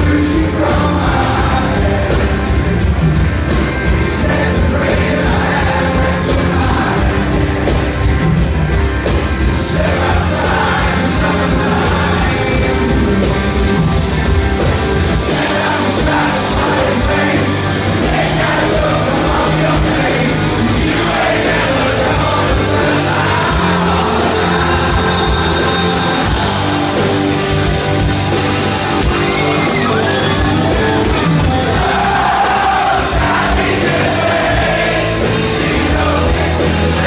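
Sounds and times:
man singing: 0:00.0 - 0:02.6, 0:03.9 - 0:07.4, 0:09.5 - 0:13.9, 0:15.1 - 0:27.0
electric guitars: 0:00.0 - 0:37.0
keyboards: 0:00.0 - 0:37.0.

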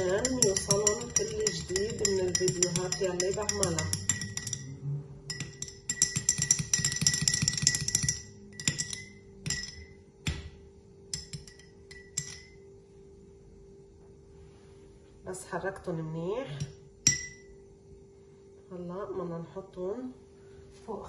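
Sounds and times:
teaspoon clinking against glass: 0:00.0 - 0:10.0, 0:11.1 - 0:12.6, 0:17.1 - 0:17.5
spoon tapping glass: 0:00.0 - 0:12.6, 0:16.6 - 0:17.5.

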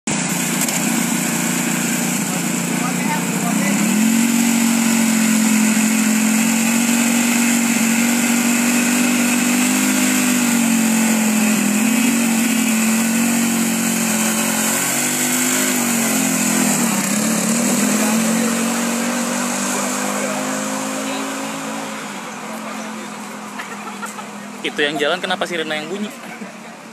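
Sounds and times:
race car engine running: 0:00.0 - 0:26.9.

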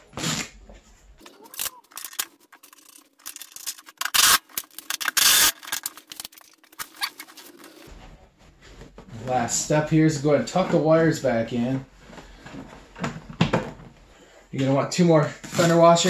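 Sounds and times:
clicks and scrapes of parts handled: 0:01.2 - 0:07.9.

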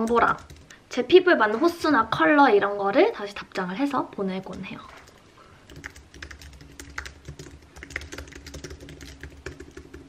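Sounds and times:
keyboard typing: 0:00.0 - 0:00.8, 0:04.5 - 0:10.0
faint steady hum: 0:00.0 - 0:10.0.

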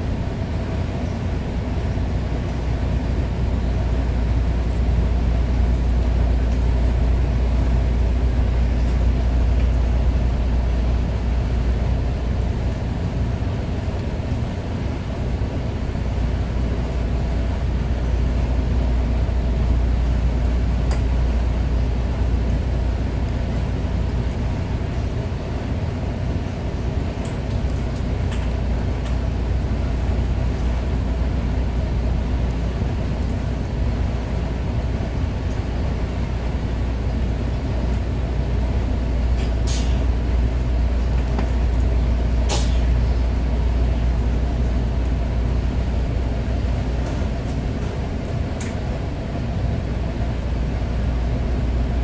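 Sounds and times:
diesel train low rumble: 0:00.0 - 0:52.0
air brakes hissing: 0:39.4 - 0:40.1, 0:42.5 - 0:42.9.

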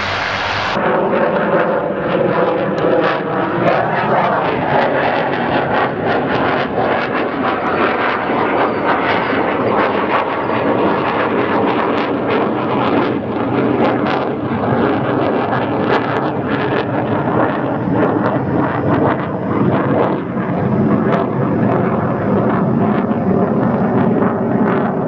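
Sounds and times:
jet engine rush: 0:00.0 - 0:25.0.

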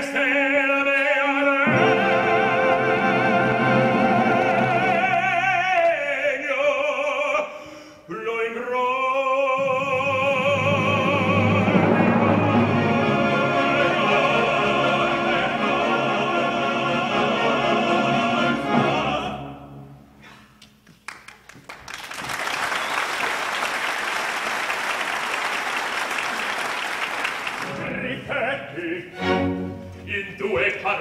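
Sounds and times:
operatic singing with orchestra: 0:00.0 - 0:20.1, 0:27.6 - 0:31.0
audience applauding: 0:20.9 - 0:27.8.

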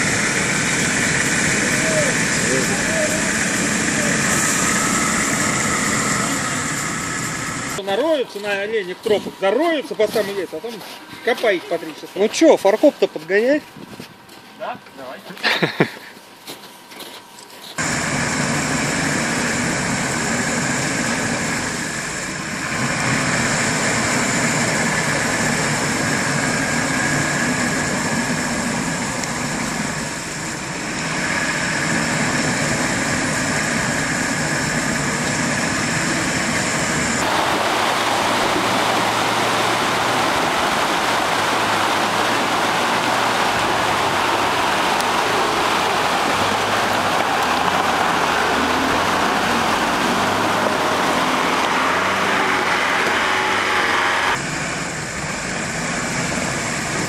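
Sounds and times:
engine revving high: 0:00.0 - 0:07.8, 0:17.8 - 0:57.0
wheels spinning in mud: 0:00.0 - 0:07.8, 0:17.8 - 0:57.0
vehicle engine running low: 0:00.0 - 0:16.1, 0:17.8 - 0:57.0
fast river rushing: 0:17.8 - 0:54.4.

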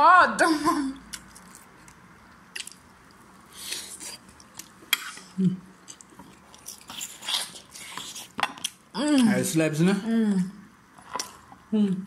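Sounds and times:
lips smacking and sucking: 0:01.1 - 0:08.8.

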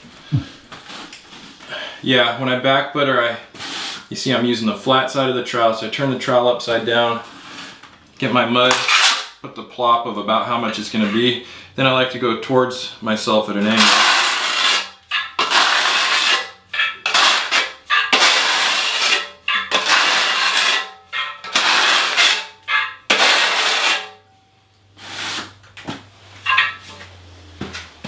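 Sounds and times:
trowel scraping mortar on tile: 0:08.7 - 0:09.3, 0:13.7 - 0:24.2, 0:25.0 - 0:25.6.

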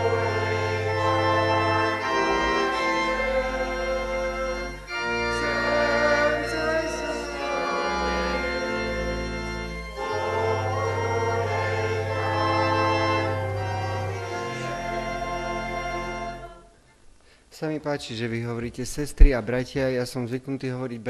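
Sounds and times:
church organ playing a hymn: 0:00.0 - 0:16.7.

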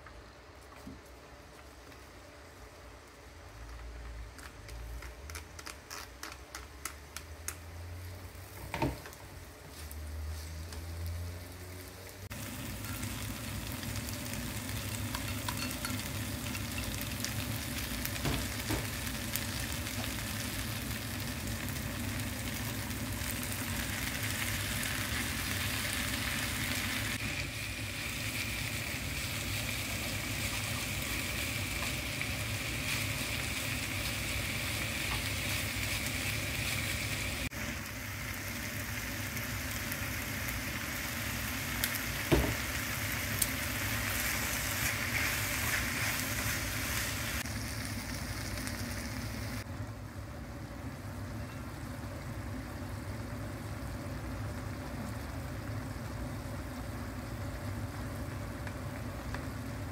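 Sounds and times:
food sizzling in pan: 0:07.6 - 0:59.9
chopsticks tapping pan: 0:15.1 - 0:16.0.

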